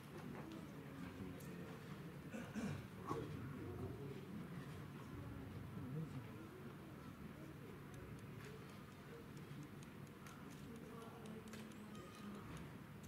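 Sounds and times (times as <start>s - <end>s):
distant murmuring voices: 0.4s - 13.0s
light ticks: 7.9s - 12.7s.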